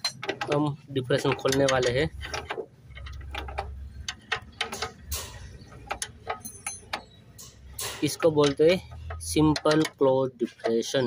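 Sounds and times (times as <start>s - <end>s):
man talking: 0.4s - 2.2s, 8.0s - 11.0s.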